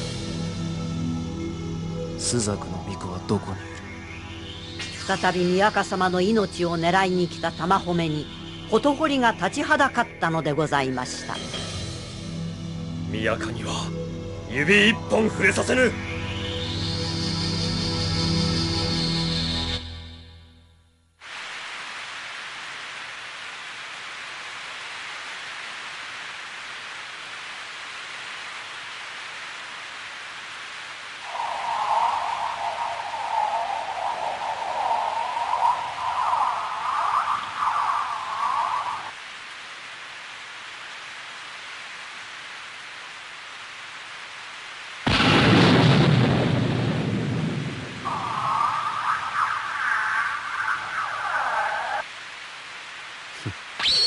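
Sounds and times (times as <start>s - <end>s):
steady rain falling: 0.0s - 19.3s, 21.2s - 54.0s
wavering high-pitched sound: 31.3s - 39.1s
thunderclap rumbling: 45.0s - 52.0s.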